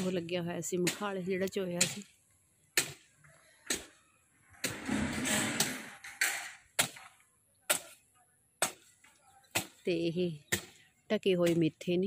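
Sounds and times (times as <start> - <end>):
hoe chopping hard soil: 2.7 - 4.0, 4.6 - 8.0, 8.6 - 9.8
rough scraping: 2.8 - 7.2.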